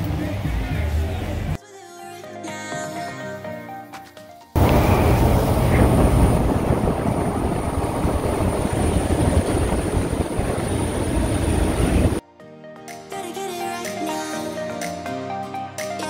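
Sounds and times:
loud engine: 4.6s - 12.2s
wind noise: 4.6s - 12.2s.

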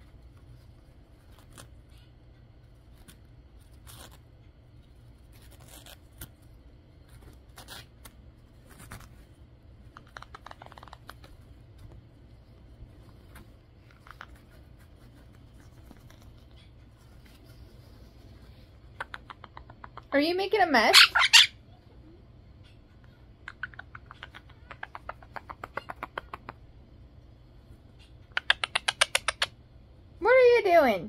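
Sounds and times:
parrot shredding tissue paper: 0.0s - 19.0s.

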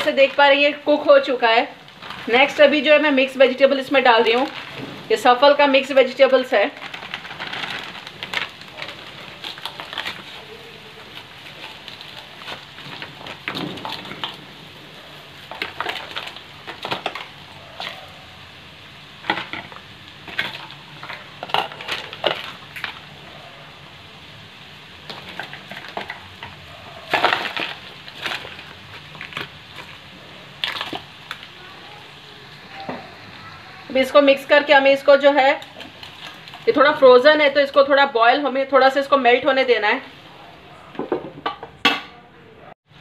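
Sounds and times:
vegetables sizzling in hot oil: 0.0s - 40.3s
crackles and pops: 6.7s - 18.3s, 19.1s - 23.4s, 24.9s - 33.8s.

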